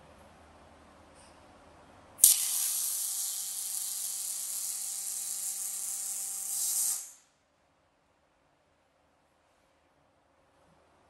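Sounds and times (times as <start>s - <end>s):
welding arc hissing: 2.2s - 7.2s.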